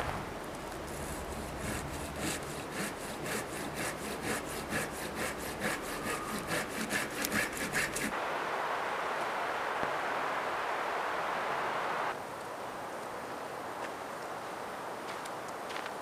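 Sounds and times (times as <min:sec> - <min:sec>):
hand saw cutting wood: 0:00.7 - 0:08.2.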